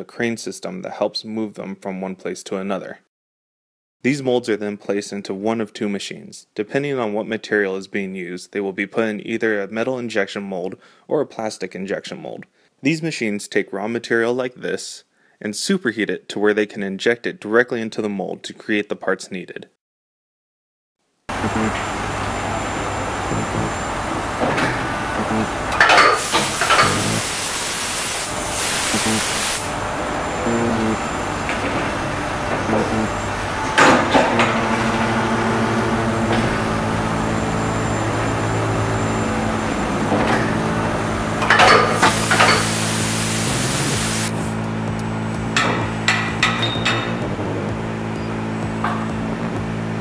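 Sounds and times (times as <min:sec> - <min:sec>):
machine humming: 0:21.3 - 0:50.0
machine door clanks: 0:24.2 - 0:27.2, 0:31.3 - 0:37.0, 0:39.9 - 0:40.8, 0:41.4 - 0:42.8, 0:45.6 - 0:47.3
air spray gun hissing: 0:26.1 - 0:29.8, 0:41.8 - 0:44.6.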